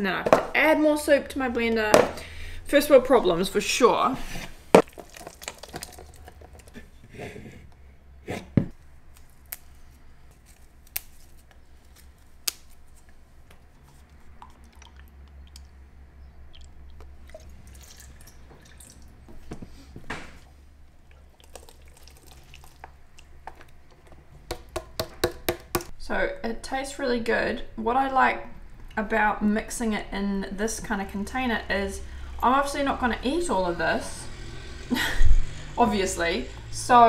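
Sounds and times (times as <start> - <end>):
thick liquid pouring: 4.8 - 6.6, 14.4 - 15.8, 16.5 - 19.2, 20.8 - 23.5.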